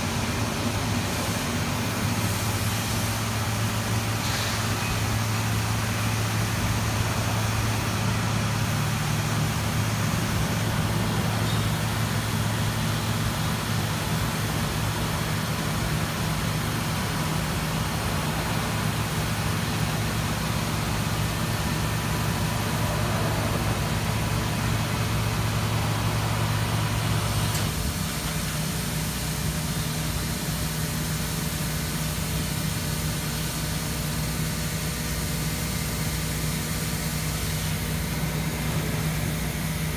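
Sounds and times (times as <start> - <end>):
machine hiss: 0.0 - 16.6
machinery hum: 0.0 - 39.9.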